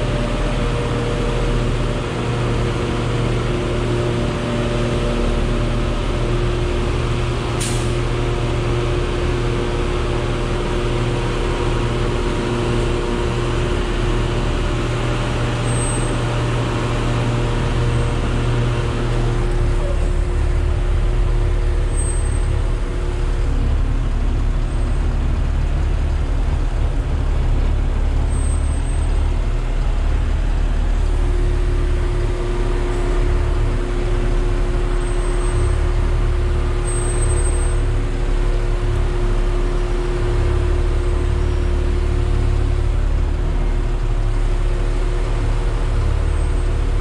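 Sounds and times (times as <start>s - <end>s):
truck engine rumbling: 0.0s - 47.0s.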